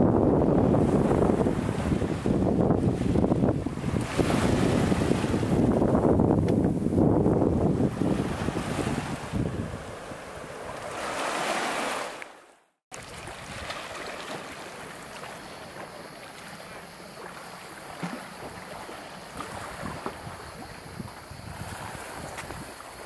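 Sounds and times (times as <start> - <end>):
wind on microphone: 0.0 - 11.9, 13.0 - 14.1, 18.0 - 23.0
waves washing onto pebbles: 10.7 - 12.2, 12.9 - 23.0.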